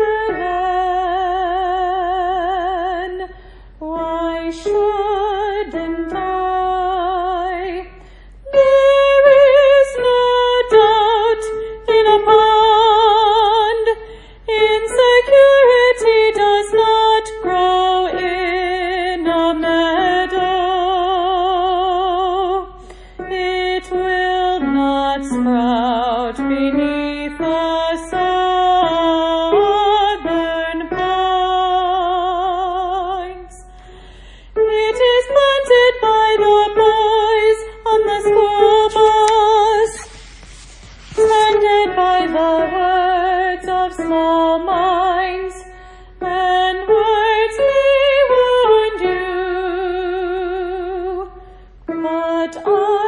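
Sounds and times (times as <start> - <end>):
woman singing with vibrato: 0.0 - 33.8, 34.6 - 40.2, 41.0 - 51.3, 51.9 - 53.0
singer breathing: 3.3 - 3.8, 8.0 - 8.4, 14.0 - 14.5, 22.8 - 23.2, 33.7 - 34.6, 45.7 - 46.2.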